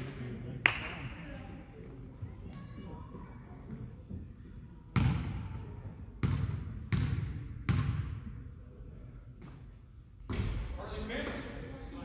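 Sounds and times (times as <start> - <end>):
basketball bouncing on wooden floor: 6.2 - 8.1.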